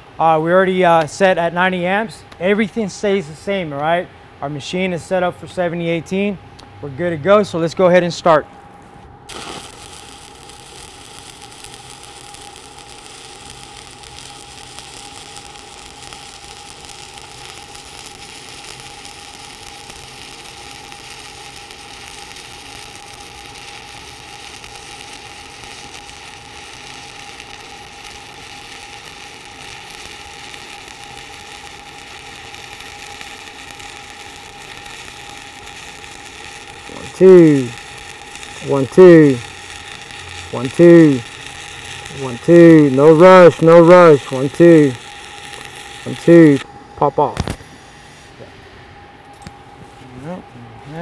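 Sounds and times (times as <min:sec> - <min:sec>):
arc welding crackle and sizzle: 0:08.6 - 0:51.0.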